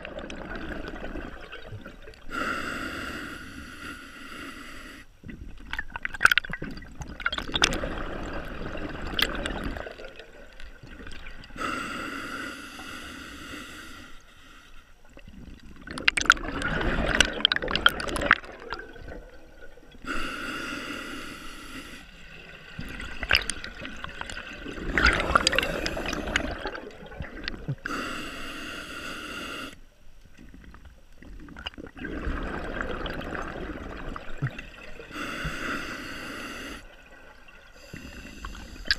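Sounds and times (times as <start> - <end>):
exhaled bubbles rushing: 0.0 - 2.3, 5.3 - 11.6, 15.1 - 20.0, 22.2 - 27.8, 31.2 - 35.1
regulator inhale hiss: 2.3 - 5.2, 11.6 - 15.0, 20.0 - 22.2, 25.3 - 26.6, 27.8 - 29.9, 35.1 - 36.9, 37.8 - 38.9.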